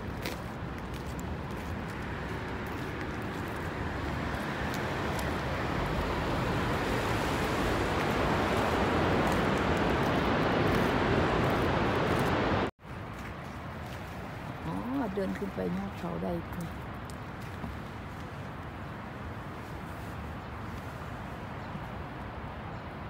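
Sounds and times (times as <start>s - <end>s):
waterfall roaring: 2.3s - 12.7s.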